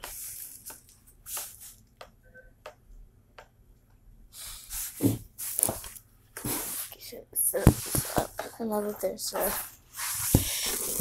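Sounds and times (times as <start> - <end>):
rubbing and rustling on wood: 4.7 - 11.0.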